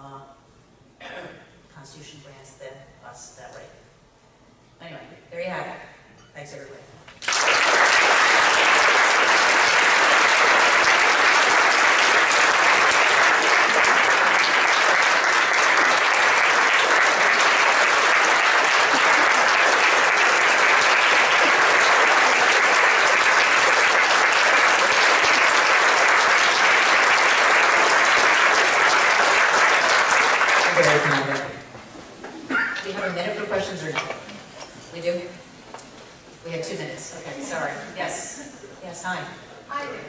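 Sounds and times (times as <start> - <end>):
large audience applauding: 7.2 - 31.6.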